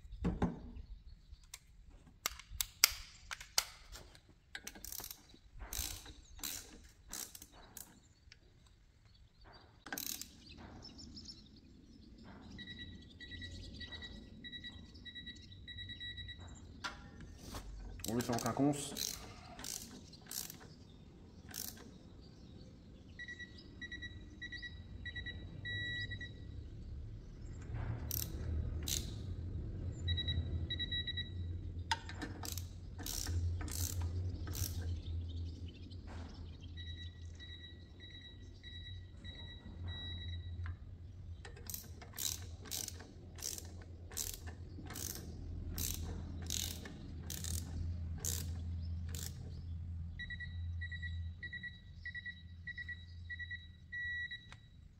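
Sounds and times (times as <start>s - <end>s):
ratchet wrench clicking: 4.5s - 7.9s, 9.9s - 10.4s, 18.0s - 20.7s, 21.5s - 21.9s, 28.1s - 29.2s, 32.0s - 34.9s, 41.4s - 49.5s
steady low hum: 5.2s - 54.9s.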